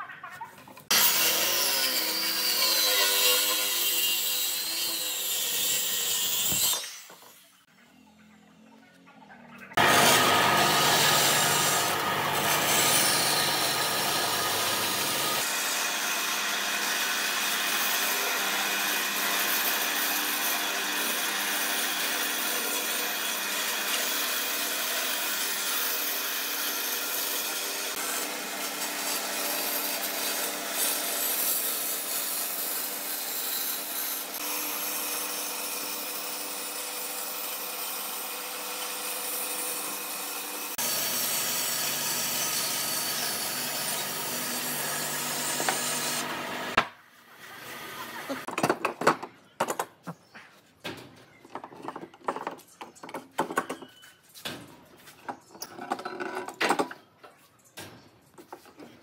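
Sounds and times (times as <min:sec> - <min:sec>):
band saw cutting wood: 0:00.9 - 0:07.6, 0:09.8 - 0:48.5.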